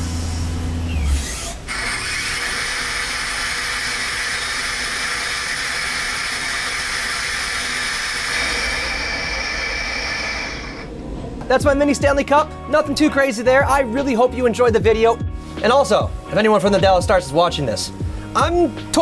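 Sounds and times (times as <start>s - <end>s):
lathe machining hiss: 0.0s - 10.9s.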